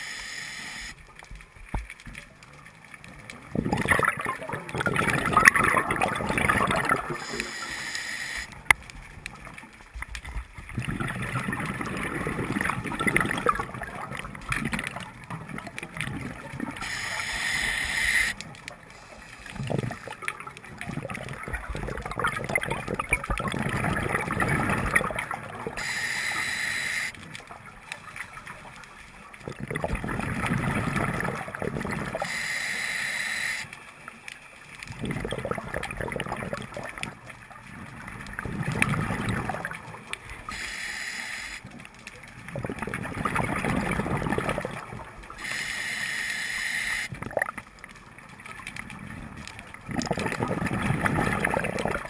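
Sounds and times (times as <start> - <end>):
hissing regulator inhale: 0.0 - 1.0, 7.2 - 8.6, 16.8 - 20.3, 25.8 - 27.2, 32.2 - 33.8, 40.5 - 41.8, 45.4 - 47.1
gurgling exhaled bubbles: 3.1 - 8.2, 10.2 - 32.8, 34.9 - 40.6, 41.6 - 45.7, 46.9 - 52.0.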